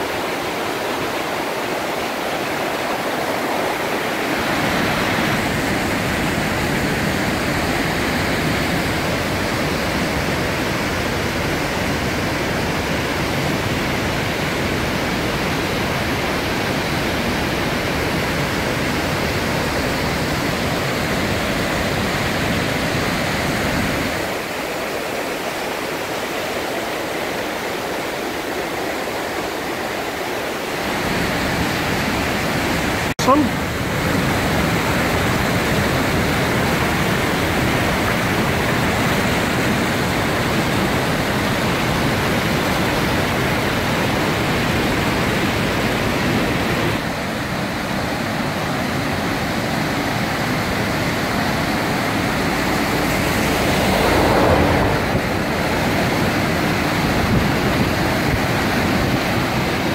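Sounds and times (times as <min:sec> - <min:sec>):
waterfall rushing over rocks: 0:00.0 - 0:59.9.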